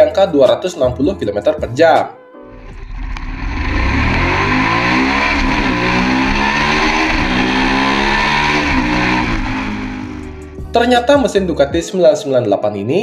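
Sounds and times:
motorcycle engine accelerating: 2.5 - 10.7.

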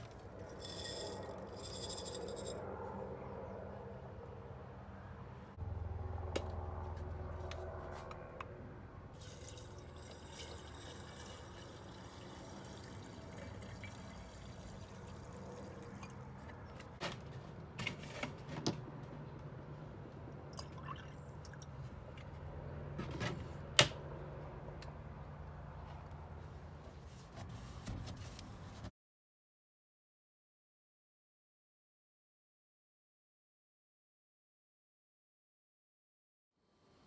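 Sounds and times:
liquid pouring into jar: 9.2 - 16.5, 20.5 - 21.7.

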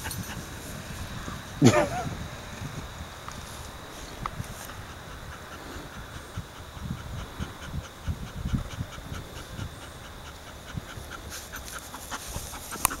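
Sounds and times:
dog panting: 4.5 - 13.0.

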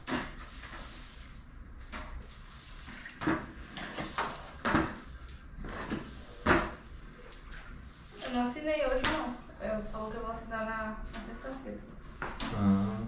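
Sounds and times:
wet mop scrubbing tile floor: 0.0 - 10.4.

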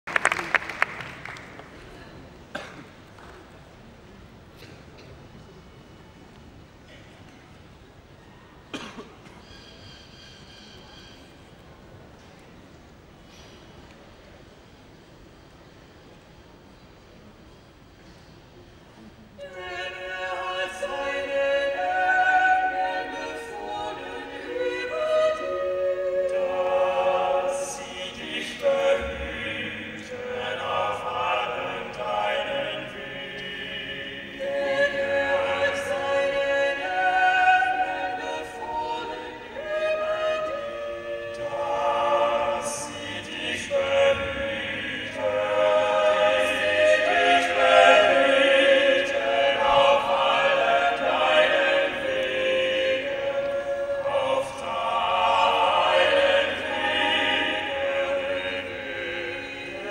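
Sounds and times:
a cappella ensemble singing: 19.4 - 59.9.

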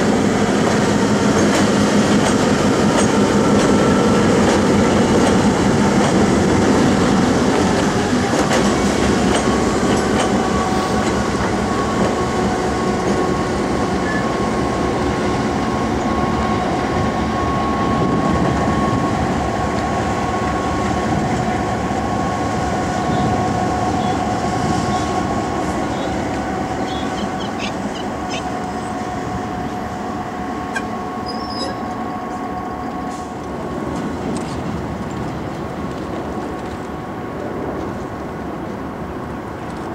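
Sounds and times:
diesel locomotive passing: 0.0 - 39.9.

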